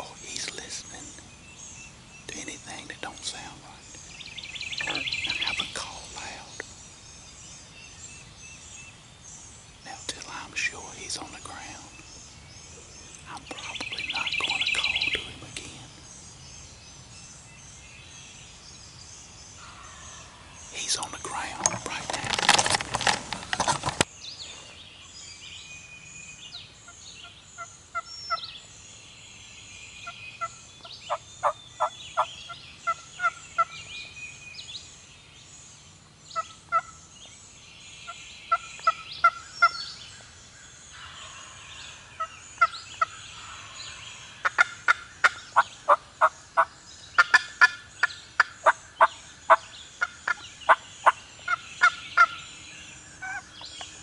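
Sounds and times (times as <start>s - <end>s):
songbirds chirping: 0.0s - 54.0s
camera handling rustle: 21.6s - 24.1s.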